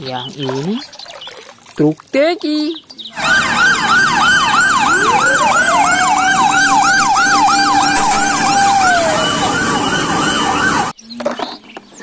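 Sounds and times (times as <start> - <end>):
wailing siren: 3.1 - 11.0
fast yelp siren: 3.2 - 11.0.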